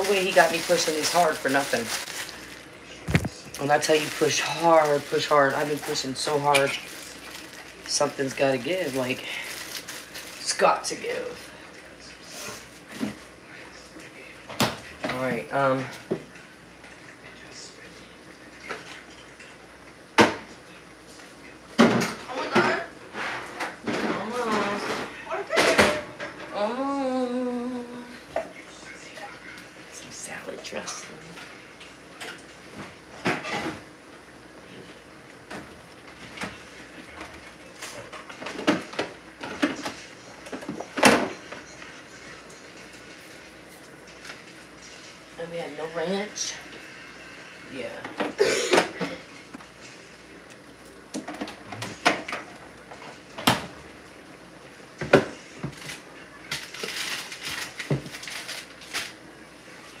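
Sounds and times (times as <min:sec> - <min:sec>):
rustling: 0:00.0 - 0:06.0.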